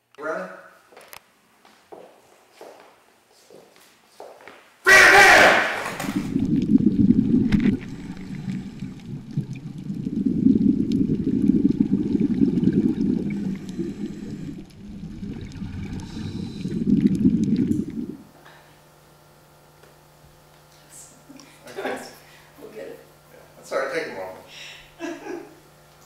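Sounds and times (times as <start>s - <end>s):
faint steady hum: 4.9s - 26.0s
underwater scuba bubbles gurgling: 6.0s - 18.3s.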